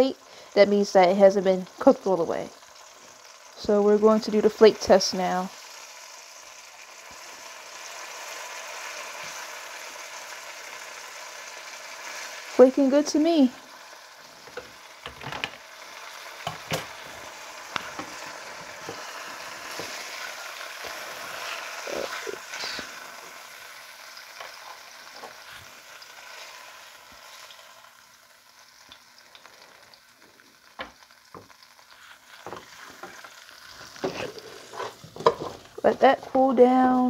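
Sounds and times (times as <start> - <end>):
oil sizzling in a frying pan: 0.0 - 37.0
utensils tapping a pan: 14.4 - 15.6, 16.4 - 20.1, 32.4 - 33.3, 34.0 - 36.5.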